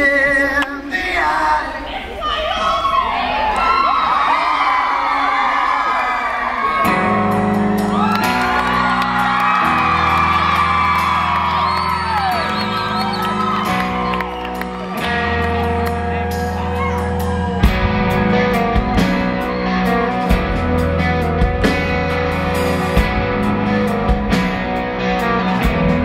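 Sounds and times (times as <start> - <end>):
audience whooping and screaming: 2.0 - 20.5
rock band playing: 6.6 - 26.0.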